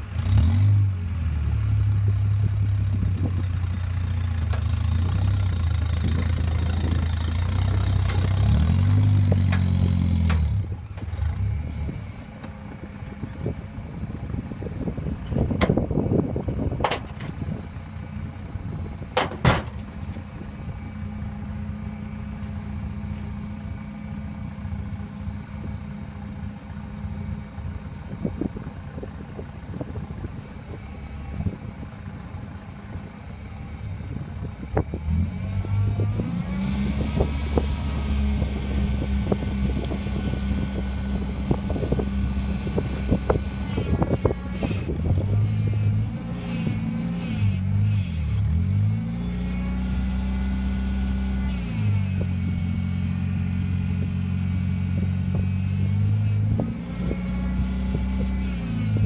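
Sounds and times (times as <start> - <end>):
log splitter engine running: 2.0 - 59.0
knocks and clanks: 16.8 - 17.4, 19.1 - 20.0.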